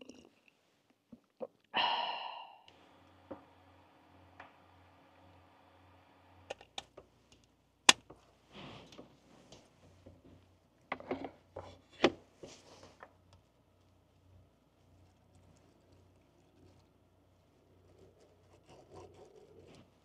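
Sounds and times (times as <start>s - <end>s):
induction cooker humming: 2.7s - 8.2s.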